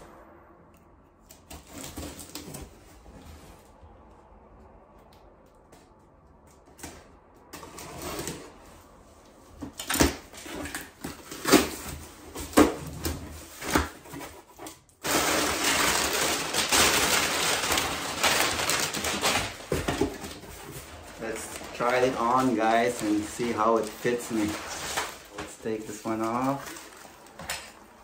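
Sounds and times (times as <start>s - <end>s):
packing paper crinkling: 15.0s - 28.0s.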